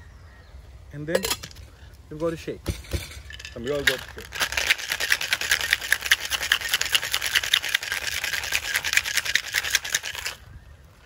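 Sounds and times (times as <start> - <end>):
ice rattling in cocktail shaker: 3.3 - 10.4.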